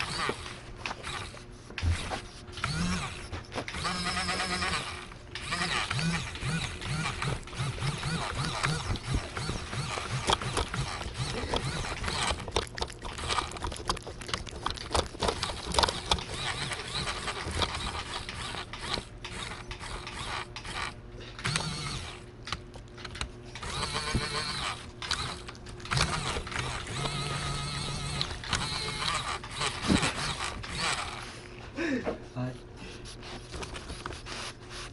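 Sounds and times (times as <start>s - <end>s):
plastic toy clicking and rattling: 5.4s - 20.9s.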